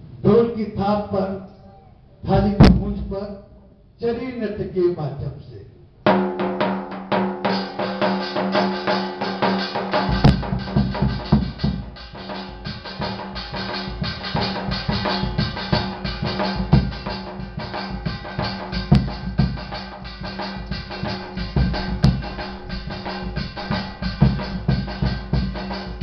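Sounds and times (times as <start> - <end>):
dhol drum beats: 6.1 - 26.0
brass plate ringing: 7.4 - 26.0.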